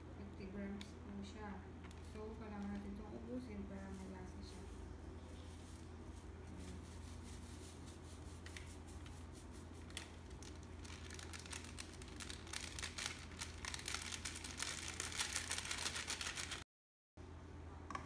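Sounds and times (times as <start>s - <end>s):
steady low hum: 0.0s - 16.6s
packet crinkling and rustling: 9.7s - 16.6s.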